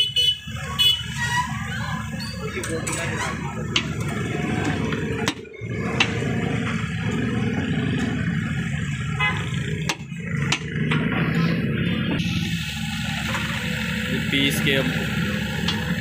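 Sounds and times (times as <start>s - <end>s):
steady low rumble: 3.4s - 16.0s.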